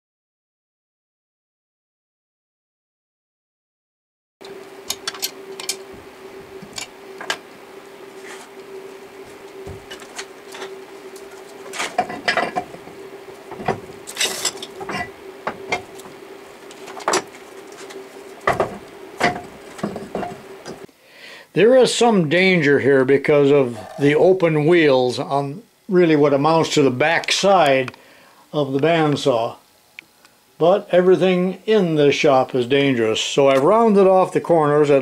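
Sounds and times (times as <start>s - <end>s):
faint steady hum: 4.4s - 35.0s
metal tools clicking and clanking: 4.9s - 5.8s, 11.7s - 12.8s, 13.5s - 15.9s.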